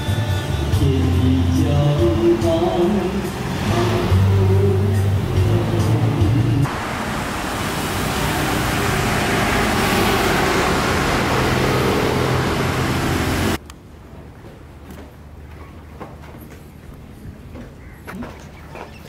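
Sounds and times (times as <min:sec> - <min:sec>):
karaoke music over loudspeaker: 0:00.0 - 0:06.7
road traffic passing: 0:00.0 - 0:14.0.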